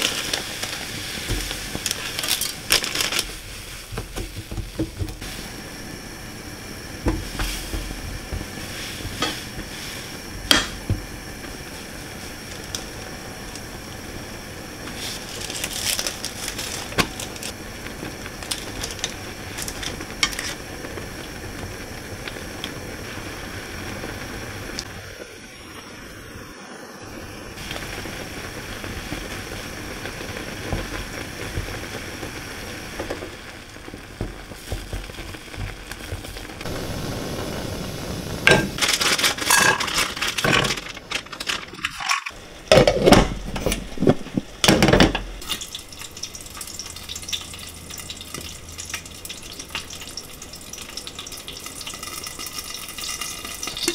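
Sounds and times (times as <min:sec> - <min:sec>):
food sizzling in a frying pan: 0:00.0 - 0:53.9
utensils clinking against pan: 0:38.5 - 0:43.8.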